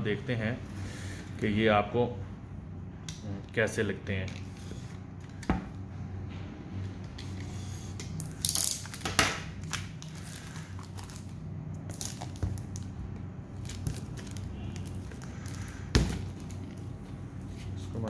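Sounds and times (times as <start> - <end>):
shrink-wrap crinkling and crackling: 8.2 - 17.0.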